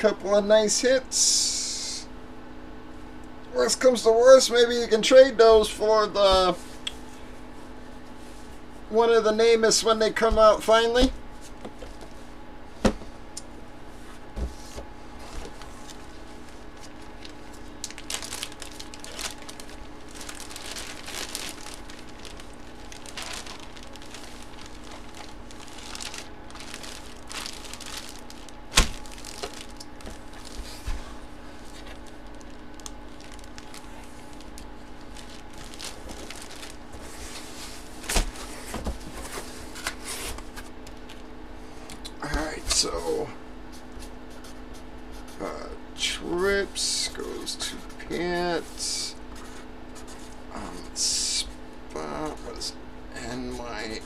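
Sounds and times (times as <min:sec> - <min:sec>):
plastic bag crinkling: 0:15.5 - 0:38.5.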